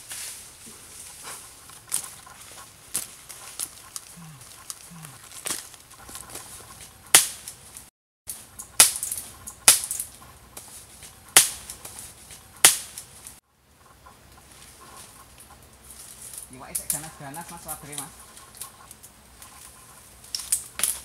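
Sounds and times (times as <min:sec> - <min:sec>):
sharp loud cracks of tool strikes: 0:08.8 - 0:10.0, 0:11.4 - 0:11.7, 0:12.6 - 0:13.0.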